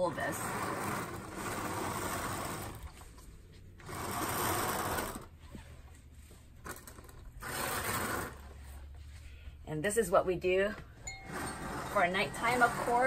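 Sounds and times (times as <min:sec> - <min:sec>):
curtain carriers rattling on track: 0:00.0 - 0:02.8, 0:11.2 - 0:13.0.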